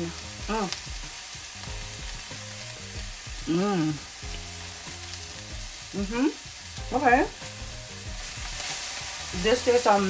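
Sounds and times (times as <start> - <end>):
greens sizzling in a frying pan: 0.0 - 10.0
person humming mmm: 3.0 - 4.5, 5.6 - 6.5.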